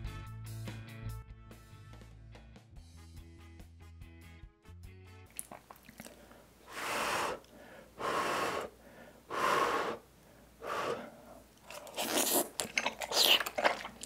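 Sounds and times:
wet mouth clicks: 5.2s - 7.6s, 10.7s - 14.0s
breathy puffs of blowing: 6.1s - 11.5s.

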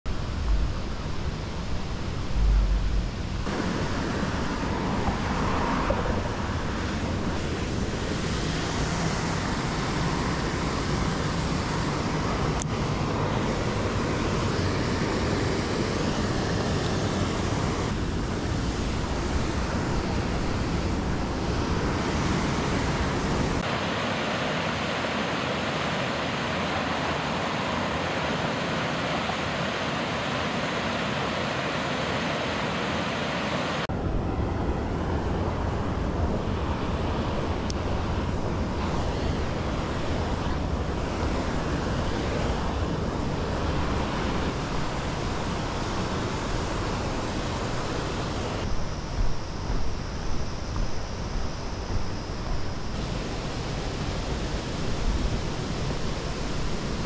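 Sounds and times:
wind buffeting microphone: 0.1s - 24.0s
waterfall rushing: 18.8s - 33.9s.

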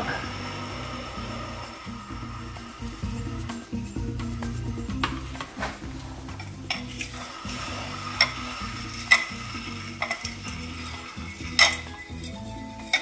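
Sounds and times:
fork clinking against glass bowl: 10.0s - 13.0s.

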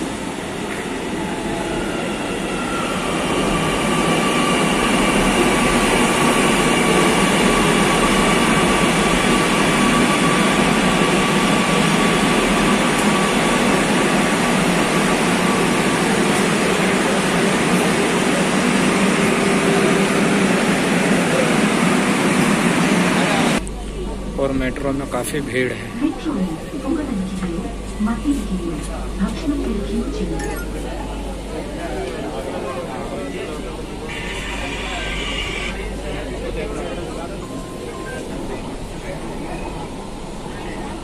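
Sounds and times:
train rolling noise: 0.0s - 41.0s.

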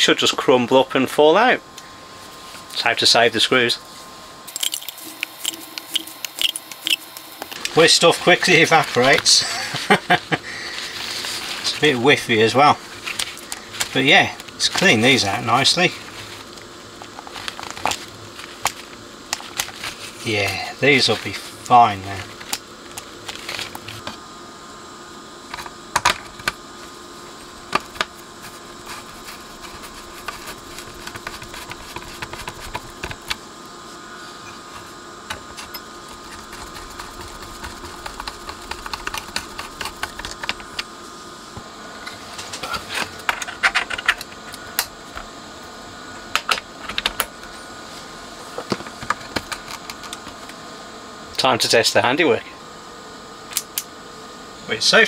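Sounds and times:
faint hum: 0.0s - 55.0s
rapid clicking: 36.2s - 40.9s.

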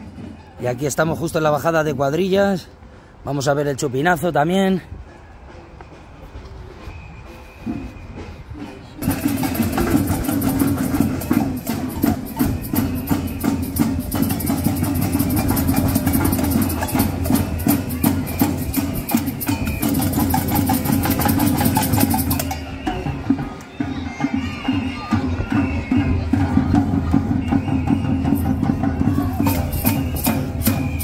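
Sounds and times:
band music with heavy drumming: 7.2s - 31.0s.

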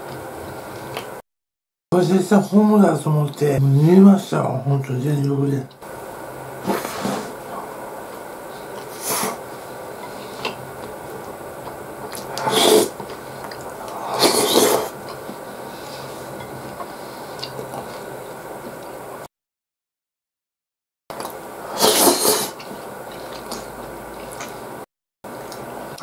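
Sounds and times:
steady low hum: 2.0s - 19.3s.

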